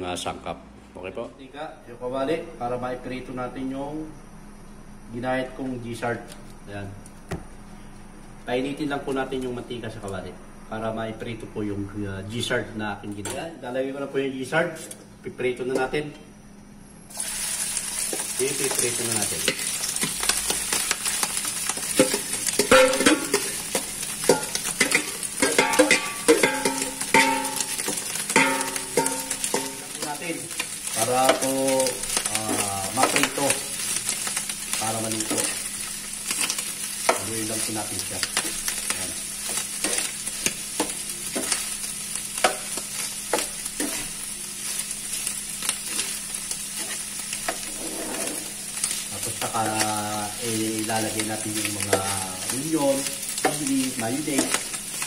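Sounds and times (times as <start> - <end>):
meat sizzling in hot oil: 17.1 - 55.0
bowl ringing: 28.4 - 29.8
spatula scraping pan: 45.8 - 49.0.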